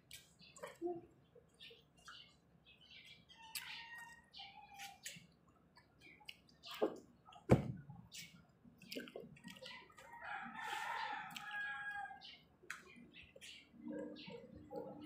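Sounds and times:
chewing and mouth clicks: 0:00.0 - 0:00.8, 0:03.4 - 0:07.4, 0:08.1 - 0:10.2, 0:11.3 - 0:11.6
rooster crowing: 0:10.2 - 0:12.2.

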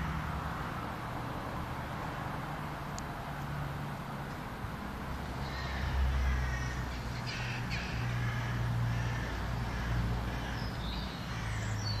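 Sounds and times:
bird calls: 0:05.4 - 0:12.0.

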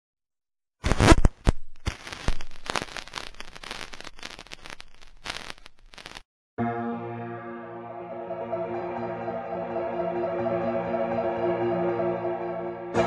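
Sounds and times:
crackling and popping: 0:00.8 - 0:06.3.

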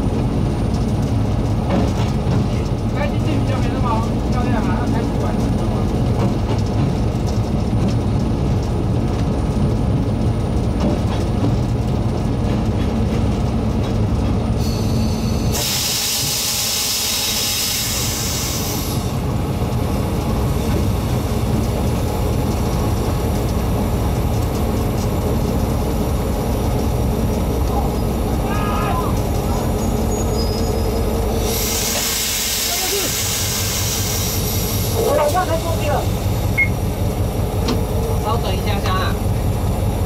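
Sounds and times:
train engine drone and rumble: 0:00.0 - 0:40.0
loud steam hiss: 0:14.6 - 0:19.2, 0:29.8 - 0:36.2.

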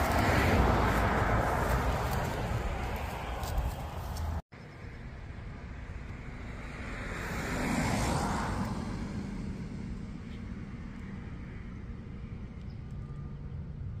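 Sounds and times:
car passing: 0:00.0 - 0:04.4, 0:05.4 - 0:12.4.

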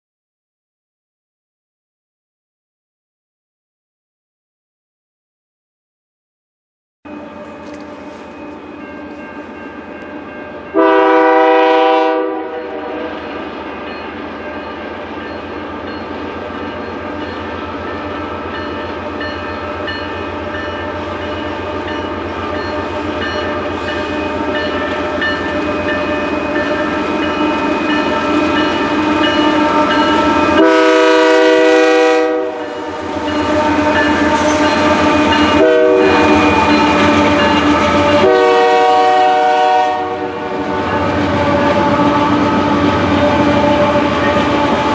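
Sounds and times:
diesel locomotive engine rumble: 0:07.1 - 0:44.9
locomotive horn blasts: 0:10.7 - 0:13.3, 0:26.7 - 0:44.9.

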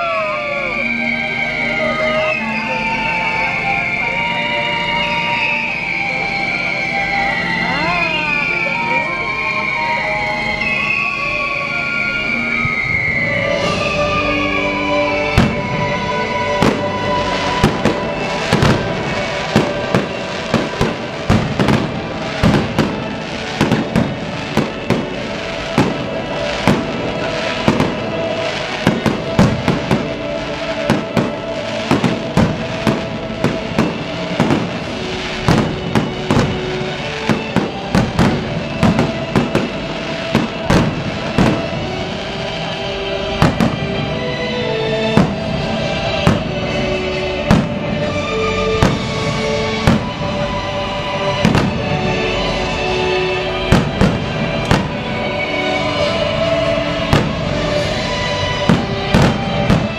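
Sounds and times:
music with long held notes: 0:00.0 - 0:59.9
fireworks bangs: 0:12.5 - 0:59.9.

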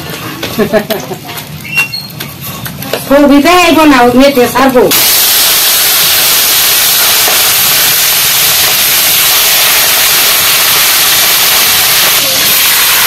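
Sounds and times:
fish frying in hot oil: 0:04.7 - 0:13.0.

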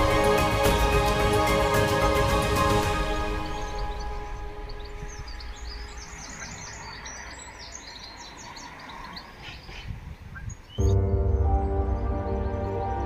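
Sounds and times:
background music: 0:00.0 - 0:07.2, 0:10.8 - 0:13.0
songbirds chirping: 0:00.0 - 0:13.0.

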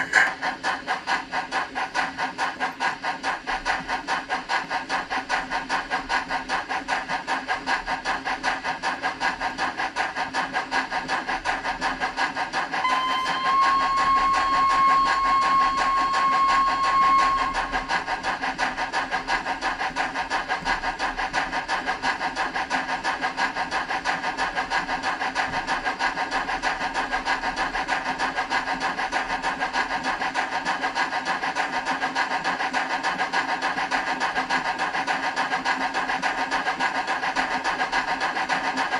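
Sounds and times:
model steam locomotive chuffing: 0:00.0 - 0:38.9
steam whistle: 0:12.8 - 0:18.2.

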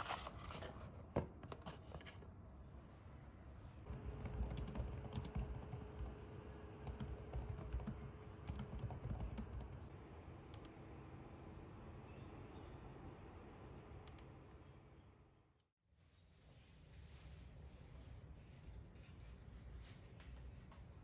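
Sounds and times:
laptop keyboard typing: 0:03.9 - 0:09.9.

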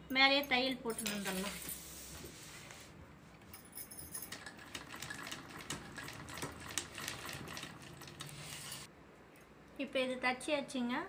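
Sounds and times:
sewing machine stitching: 0:04.4 - 0:08.9.

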